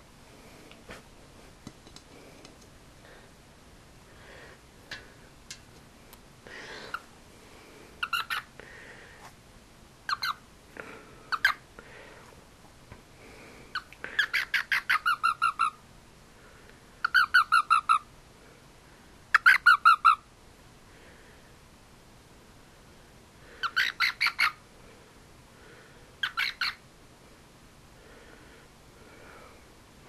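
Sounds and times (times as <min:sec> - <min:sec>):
frog chirping: 0:08.0 - 0:08.5, 0:10.1 - 0:10.4, 0:11.3 - 0:11.6, 0:13.8 - 0:15.8, 0:23.6 - 0:24.6, 0:26.2 - 0:26.8
frog squawking pulses: 0:10.1 - 0:10.4.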